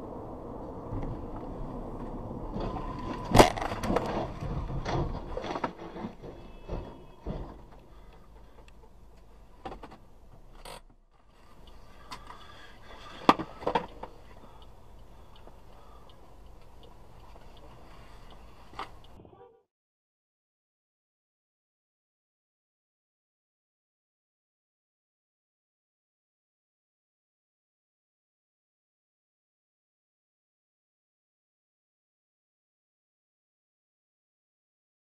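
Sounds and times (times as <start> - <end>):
road noise: 0.0 - 19.4
knocks and scraping: 0.9 - 14.4
car crash bang: 2.5 - 7.7.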